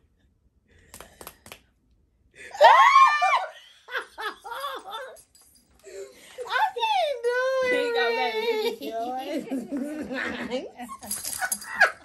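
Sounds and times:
hand clap: 0.8s - 1.8s
woman squealing: 2.5s - 3.6s
woman laughing: 3.3s - 5.2s, 7.4s - 12.0s.

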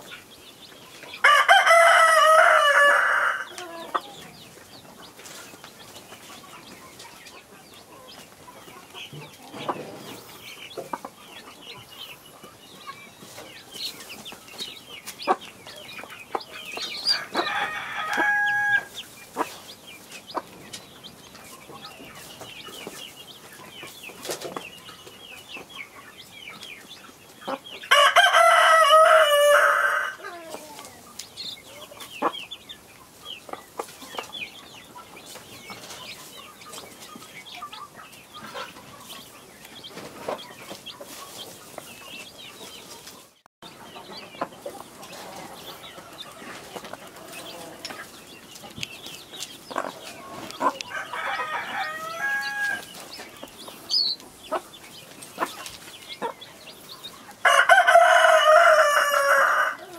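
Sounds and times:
chicks peeping: 0.0s - 59.9s
rooster crowing: 1.2s - 3.9s, 17.1s - 18.9s, 27.9s - 30.5s, 50.8s - 52.9s, 57.4s - 59.9s.

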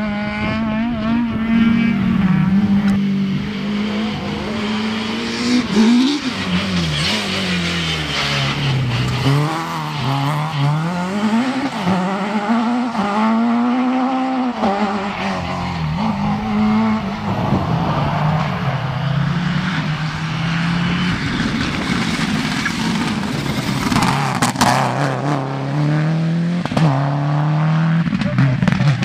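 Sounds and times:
rally car engines accelerating: 0.0s - 29.0s
rally car passing: 0.0s - 29.0s.

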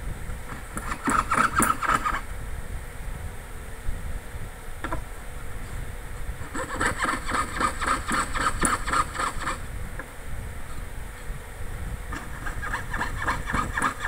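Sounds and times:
saw rasping through metal: 0.6s - 2.3s, 6.4s - 9.6s, 12.1s - 14.0s
steady low rumble: 2.0s - 6.6s, 9.0s - 13.6s.

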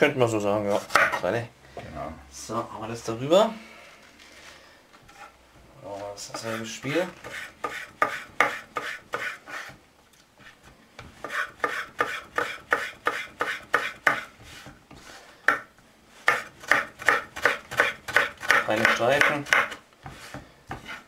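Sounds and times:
knife slicing ginger on wooden board: 7.2s - 9.8s, 11.2s - 14.8s, 16.2s - 21.0s.

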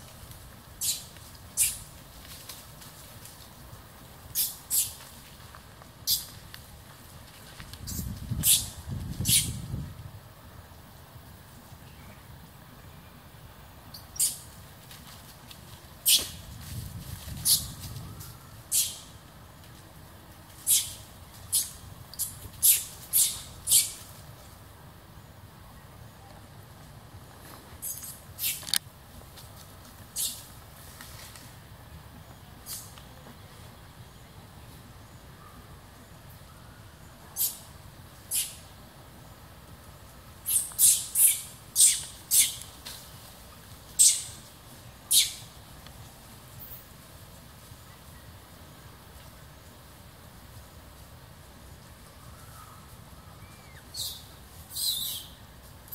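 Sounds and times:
baby monkey screaming: 20.7s - 24.0s, 40.4s - 42.6s, 44.0s - 44.4s, 45.1s - 45.4s.

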